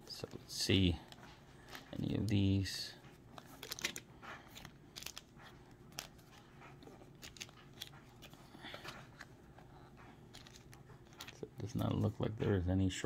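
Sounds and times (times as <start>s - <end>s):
cardboard cards clicking and scraping: 3.3s - 11.9s.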